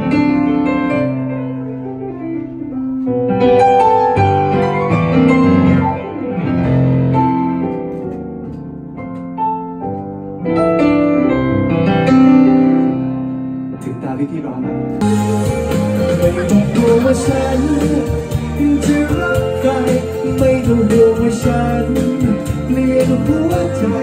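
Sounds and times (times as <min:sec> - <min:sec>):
electric keyboard playing piano: 0:00.0 - 0:24.0.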